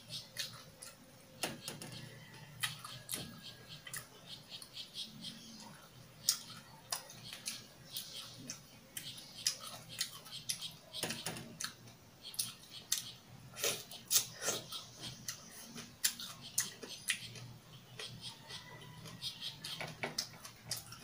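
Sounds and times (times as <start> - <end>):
person chewing crunchy food: 12.4 - 17.5.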